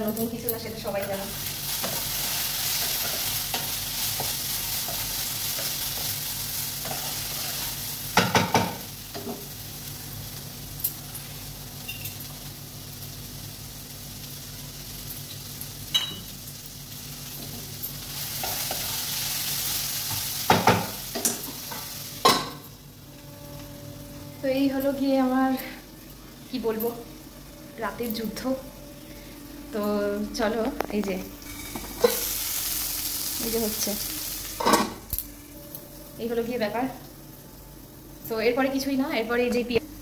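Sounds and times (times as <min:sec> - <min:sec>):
potatoes sizzling in oil: 0:00.6 - 0:22.9, 0:29.7 - 0:35.1
utensils knocking against pan: 0:08.2 - 0:09.4.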